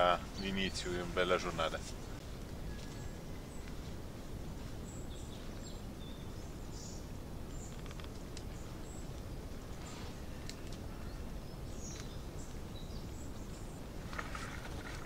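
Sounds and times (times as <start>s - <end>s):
faint bird chirps: 0.0s - 4.0s
low background noise: 0.0s - 15.0s.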